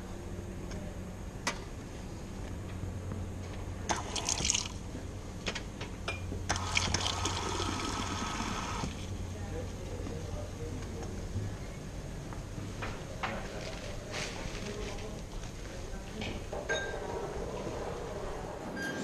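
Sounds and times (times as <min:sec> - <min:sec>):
steady low hum: 0:00.0 - 0:18.9
drink pouring into cup: 0:03.9 - 0:04.8, 0:06.5 - 0:09.0.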